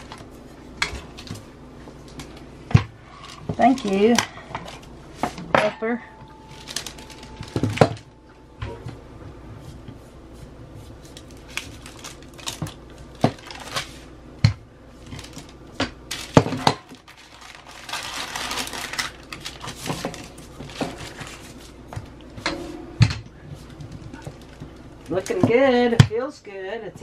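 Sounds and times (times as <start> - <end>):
paper rustling: 6.5 - 8.1, 10.8 - 14.1, 16.1 - 21.8.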